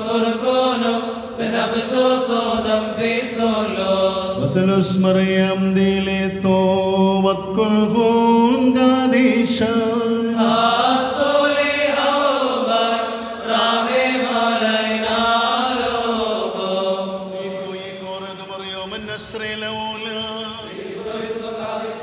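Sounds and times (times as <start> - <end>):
voices chanting long notes: 9.8 - 22.0.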